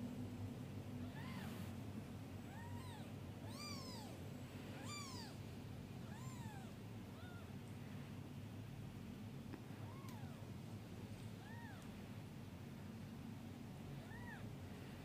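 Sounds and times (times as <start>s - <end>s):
low steady hum: 0.0s - 15.0s
kittens mewing: 1.0s - 1.6s, 2.4s - 5.4s, 6.0s - 7.6s, 11.4s - 11.9s, 14.0s - 14.5s.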